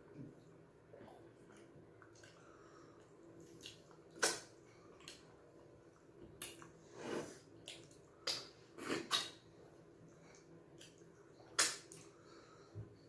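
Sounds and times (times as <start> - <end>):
wet squishing of food: 0.2 - 12.5
lip smacks: 3.0 - 5.3, 7.6 - 9.4, 10.3 - 12.1.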